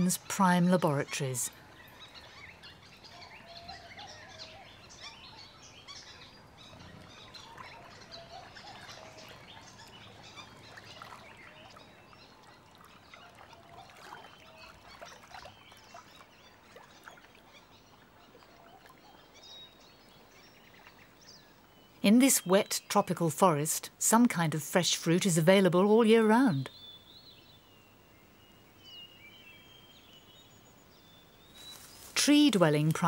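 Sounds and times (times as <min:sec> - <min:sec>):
bird chirps and calls: 0:00.0 - 0:33.0.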